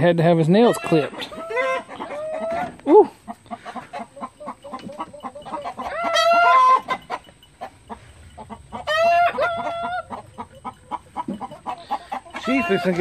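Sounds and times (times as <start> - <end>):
hens clucking: 0.1 - 13.0
rooster crowing: 5.4 - 7.1, 8.7 - 10.7, 11.6 - 13.0.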